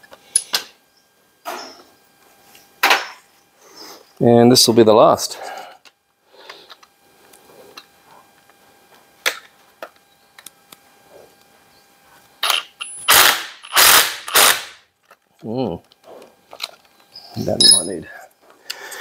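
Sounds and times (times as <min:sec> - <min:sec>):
impact driver rattling bursts: 0:13.1 - 0:14.7.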